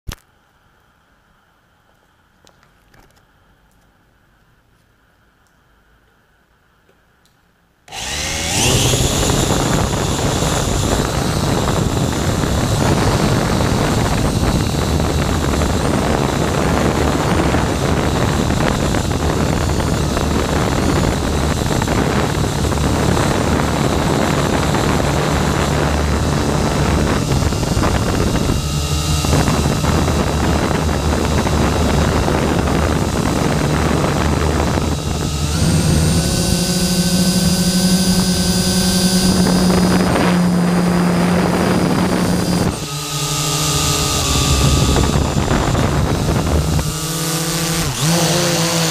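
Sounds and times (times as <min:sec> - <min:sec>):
drone propellers buzzing: 0:07.9 - 0:48.9.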